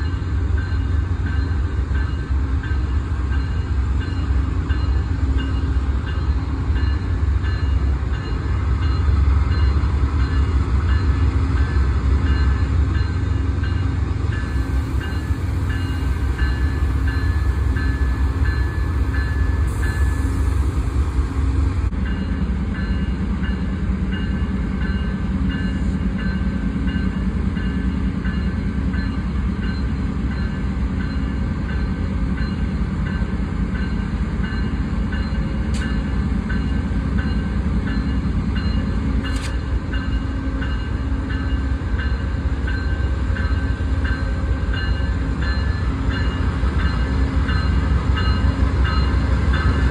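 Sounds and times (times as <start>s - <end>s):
diesel locomotive rumble: 0.0s - 49.9s
brief clicks: 39.3s - 39.6s.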